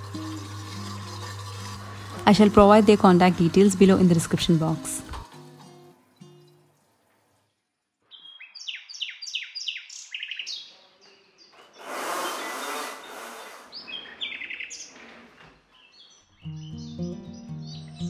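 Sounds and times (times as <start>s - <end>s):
birds chirping: 8.0s - 18.0s.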